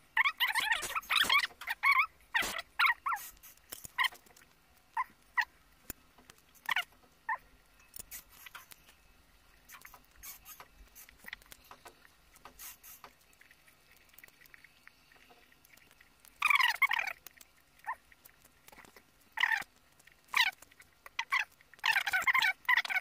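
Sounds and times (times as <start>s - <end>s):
egg being chewed: 0.2s - 23.0s
short high squeaks: 0.4s - 3.4s, 9.7s - 11.4s
lip smacks and wet clicks: 9.6s - 23.0s.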